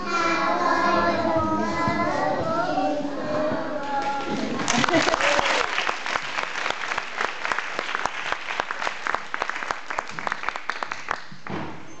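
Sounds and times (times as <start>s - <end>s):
audience applauding: 4.0s - 11.4s.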